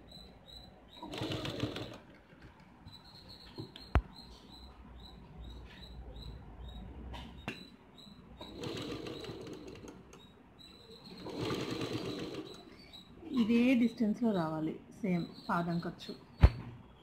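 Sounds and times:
sewing machine stitching: 1.0 - 2.2, 8.4 - 10.0, 11.1 - 12.7.

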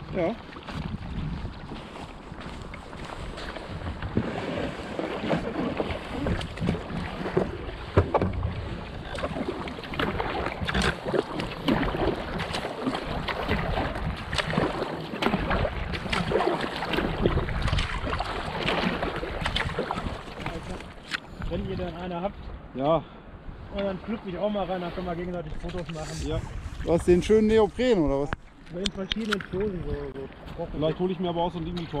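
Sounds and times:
paddle splashing in water: 0.1 - 21.6.

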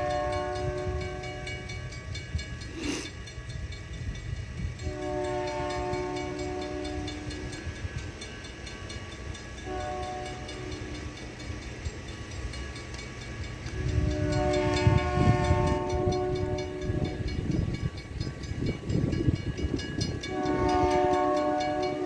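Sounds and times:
locomotive air horn: 0.0 - 1.6, 4.8 - 7.4, 9.6 - 10.9, 13.8 - 17.2, 20.2 - 22.0
rumble of passing train: 0.0 - 22.0.

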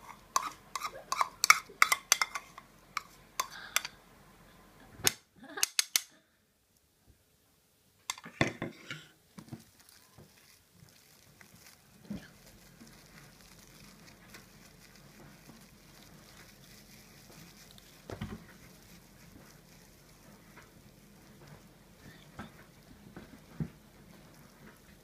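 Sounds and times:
cling film crinkling: 9.3 - 25.0.

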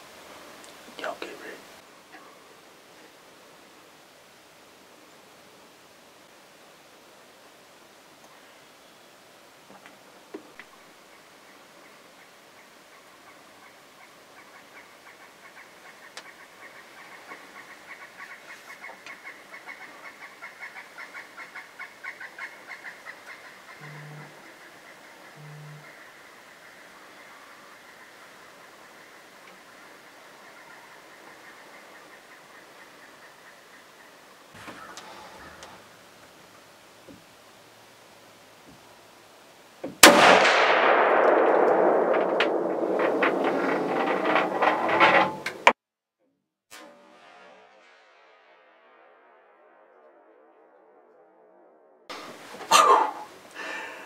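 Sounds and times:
rifle shot: 40.0 - 44.6
scattered clicks and rustles: 42.2 - 45.8.

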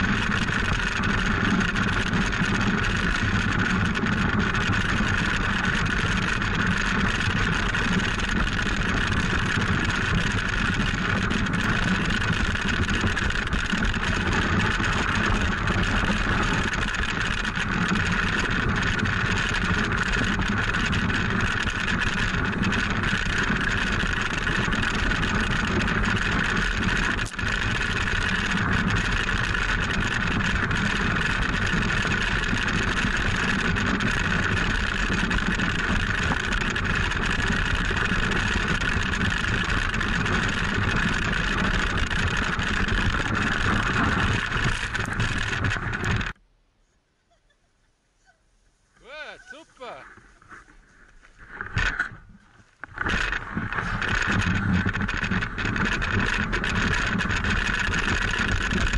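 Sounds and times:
toboggan runners on snow: 0.0 - 46.4, 48.2 - 58.9
wind on microphone: 0.0 - 46.4.

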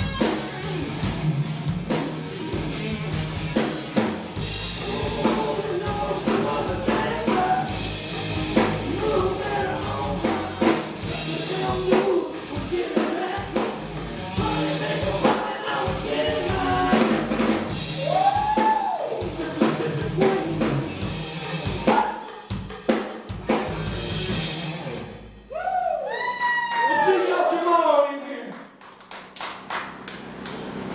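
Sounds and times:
guitar line bending notes: 0.0 - 12.9, 13.6 - 15.2
electric guitars: 0.0 - 22.0, 23.3 - 25.5.

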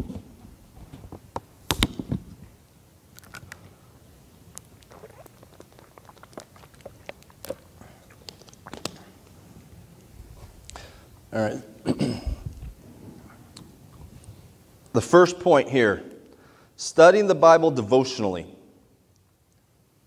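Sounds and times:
plastic water bottle crinkling: 4.5 - 9.4.

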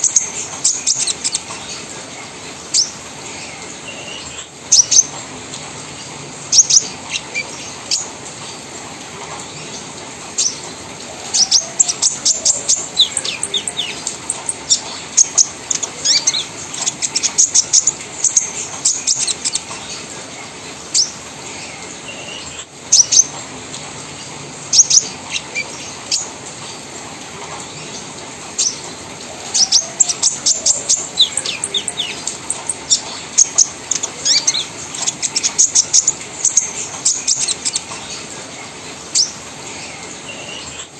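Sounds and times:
bird chirping and trilling: 0.0 - 1.9, 11.2 - 20.1, 29.4 - 38.3.

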